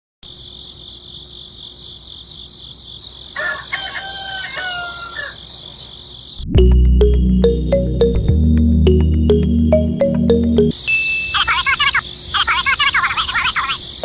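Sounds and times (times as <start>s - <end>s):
rooster crowing: 3.4s - 5.5s
loud music: 6.5s - 10.8s.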